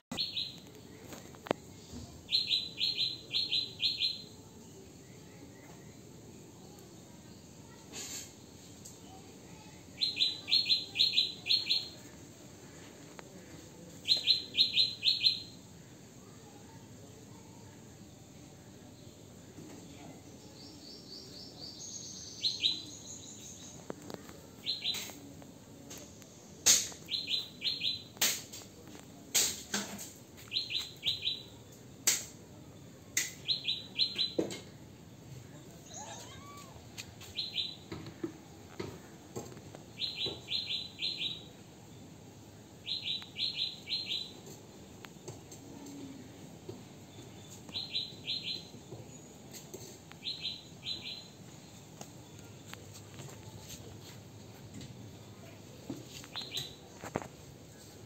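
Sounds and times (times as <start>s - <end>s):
small bird chirping: 20.5s - 25.2s, 42.8s - 44.6s, 49.8s - 52.7s, 56.1s - 56.9s.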